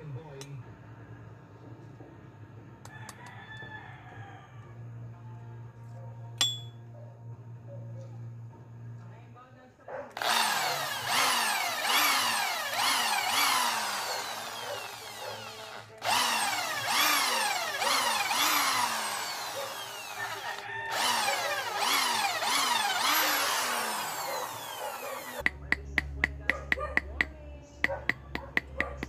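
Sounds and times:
electric drill boring into wood: 10.2 - 25.4.

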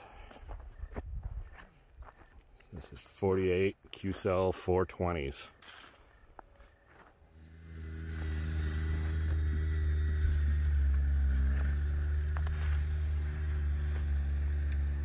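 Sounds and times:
faint high whine: 5.2 - 15.0
low engine hum: 7.2 - 15.0.

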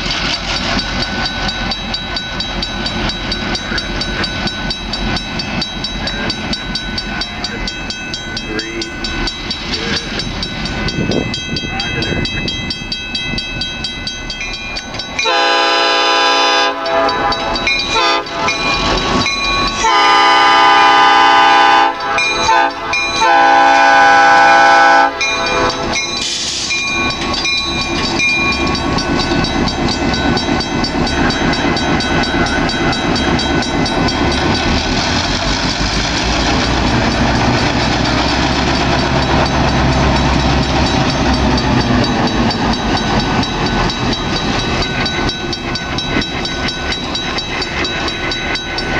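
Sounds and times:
diesel engines rumbling: 0.0 - 48.9
locomotive horn blasts: 15.2 - 18.7, 19.8 - 26.0.

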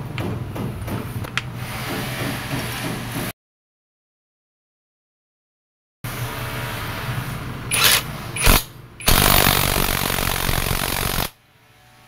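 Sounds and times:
impact wrench bursts: 7.7 - 11.4.

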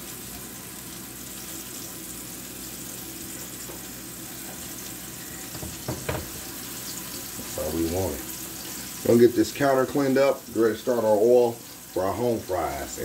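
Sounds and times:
steaks sizzling in oil: 0.0 - 13.0
steaks knocking in pan: 5.5 - 7.4.

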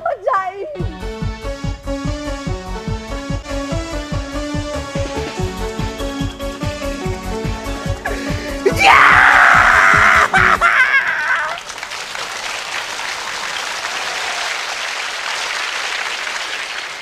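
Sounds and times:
closing music: 0.8 - 10.8
audience applause: 7.8 - 17.0
audience laughing: 9.9 - 11.8.

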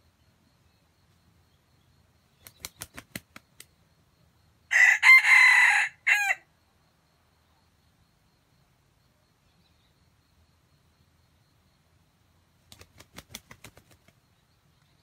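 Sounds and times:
rooster crowing: 4.7 - 6.5.

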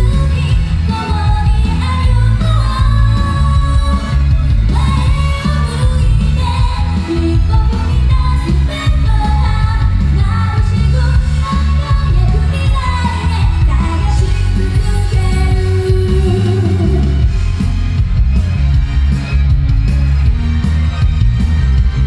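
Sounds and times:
woman singing into microphone: 0.0 - 17.2
loud pop music with heavy bass: 0.0 - 22.0.

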